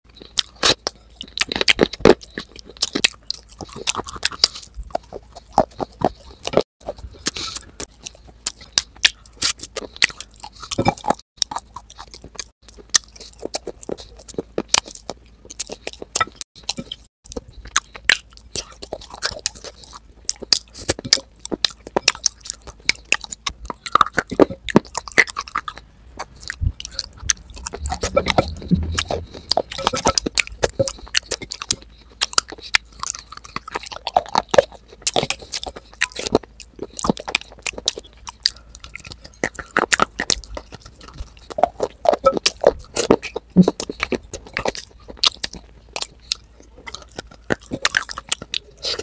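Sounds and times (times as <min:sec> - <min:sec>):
person chewing crunchy clay: 0:00.1 - 0:49.0.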